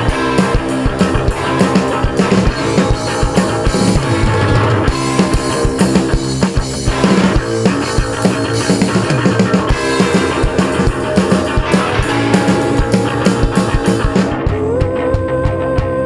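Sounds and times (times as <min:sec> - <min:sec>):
bass guitar: 0:00.0 - 0:16.0
distorted electric guitar: 0:00.0 - 0:16.0
drum kit: 0:00.0 - 0:16.0.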